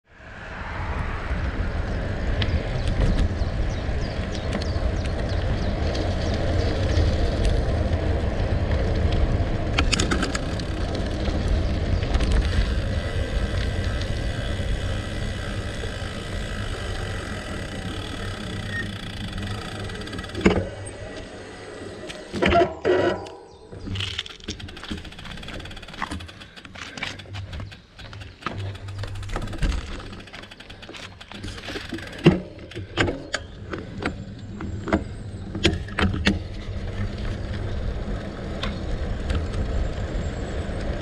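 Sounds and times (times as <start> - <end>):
bike tyres crunching on gravel: 3.5 - 22.3, 23.5 - 32.3.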